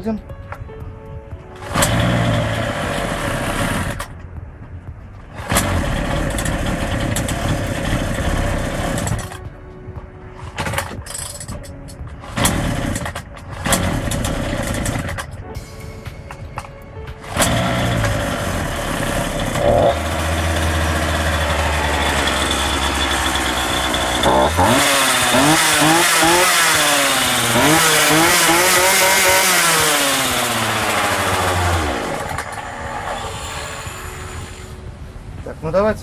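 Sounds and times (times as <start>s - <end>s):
chainsaw engine idling and revving: 1.6s - 4.1s, 5.4s - 9.4s, 12.3s - 15.3s, 17.2s - 33.7s.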